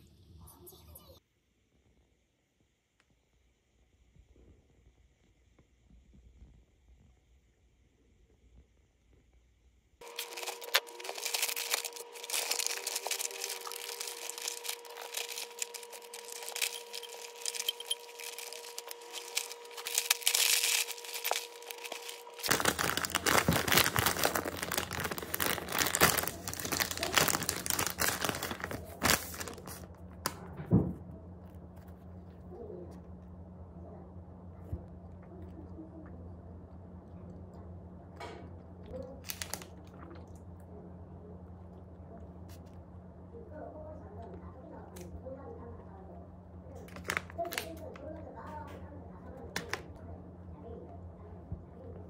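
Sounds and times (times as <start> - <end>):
faint steady hum: 0.0 - 52.0
fabric bag rustling: 10.0 - 29.9
paper bag crackling and tearing: 10.0 - 30.4, 39.2 - 39.7, 46.9 - 48.0.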